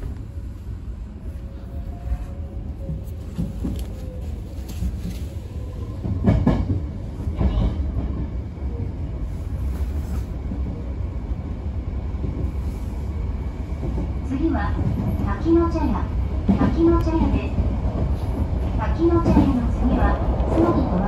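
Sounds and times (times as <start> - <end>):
train running gear rumble: 0.0 - 21.0.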